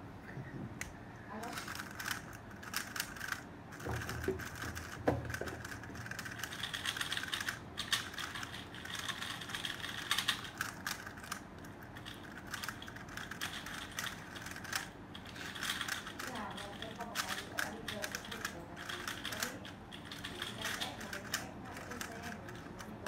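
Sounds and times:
plastic puzzle cube clicking: 4.0 - 16.2.

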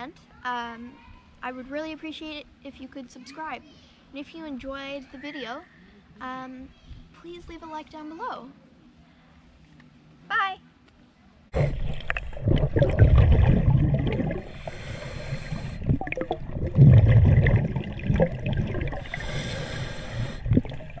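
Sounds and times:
regulator bubbles gurgling: 11.6 - 21.0
hissing breaths through regulator: 14.4 - 16.0, 18.9 - 20.9.

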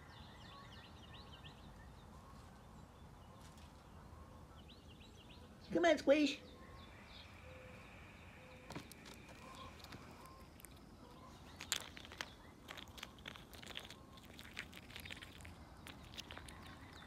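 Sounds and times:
nuts clicking and tapping: 8.7 - 17.0.

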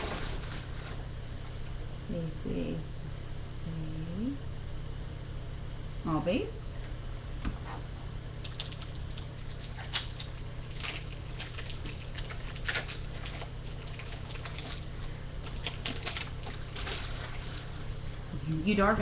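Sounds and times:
foil wrapper crinkling: 8.3 - 18.3.

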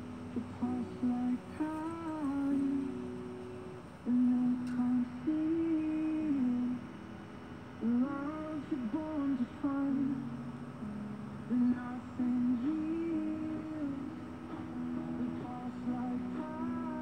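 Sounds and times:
person humming: 4.0 - 6.9, 7.8 - 17.0.

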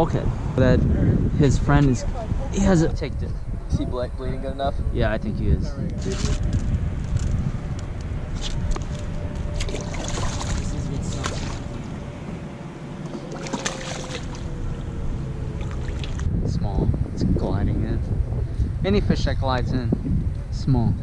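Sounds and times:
wind on microphone: 0.0 - 21.0
fish splashing into water: 9.6 - 11.8, 13.1 - 14.5, 15.6 - 16.3.

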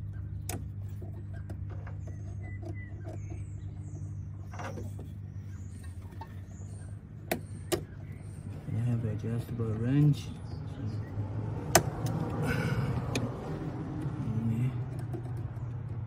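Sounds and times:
steady low hum: 0.0 - 16.0
sharp metallic clicks: 11.6 - 12.4.

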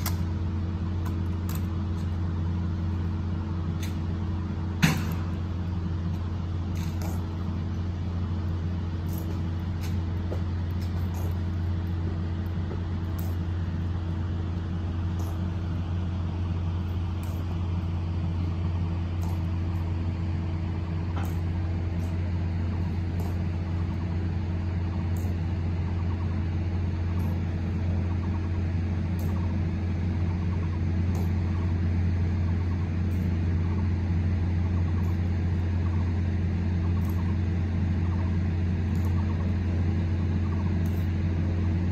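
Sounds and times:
low droning hum: 0.0 - 41.9
marching boot steps: 9.1 - 11.4.

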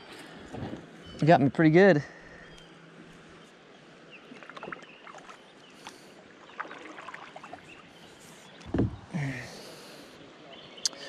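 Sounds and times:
paddle dipping into water: 4.3 - 9.1
water splashing and dripping: 6.6 - 7.9
low thump: 8.6 - 9.1.

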